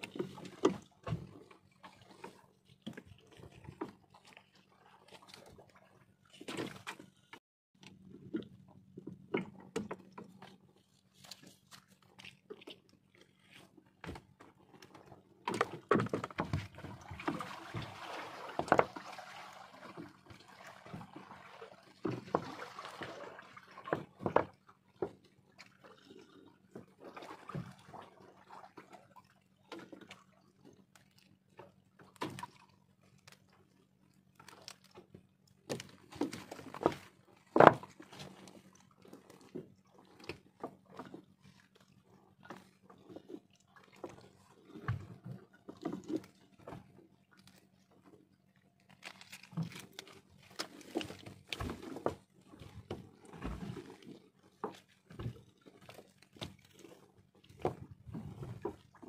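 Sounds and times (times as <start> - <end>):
water splashing and dripping: 15.5 - 26.4
wet netting rustling: 48.8 - 52.2.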